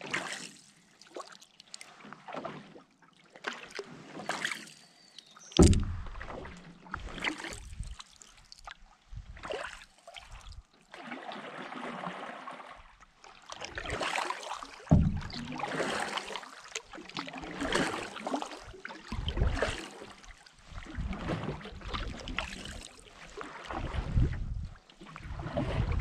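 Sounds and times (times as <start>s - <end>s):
paddle splashing through water: 0.0s - 26.0s
water lapping along hull: 0.0s - 26.0s
single knock: 5.6s - 6.6s
wind rumble on microphone: 5.6s - 8.0s, 9.0s - 9.5s, 10.2s - 10.7s, 19.1s - 19.7s, 20.6s - 22.5s, 23.7s - 26.0s.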